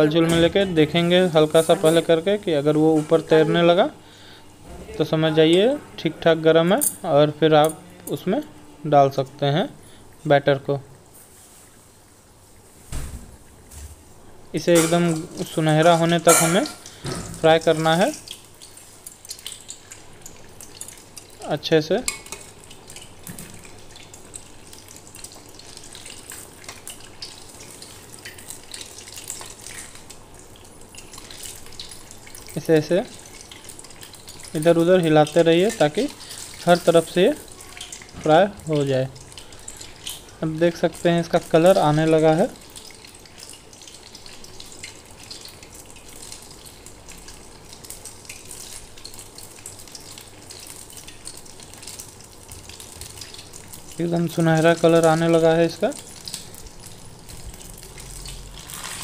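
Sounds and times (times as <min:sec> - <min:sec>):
batter deep-frying in oil: 0:00.0 - 0:59.0
oil crackling and popping: 0:14.6 - 0:59.0.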